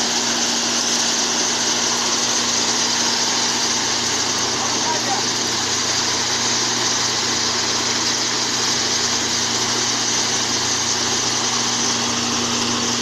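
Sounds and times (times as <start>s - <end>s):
hiss: 0.0s - 13.0s
shelling machine humming: 0.0s - 13.0s.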